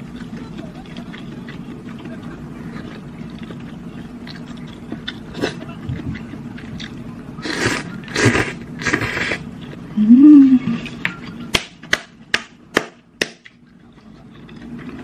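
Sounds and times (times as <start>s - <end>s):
quiet chewing: 0.0s - 9.9s, 13.4s - 15.0s.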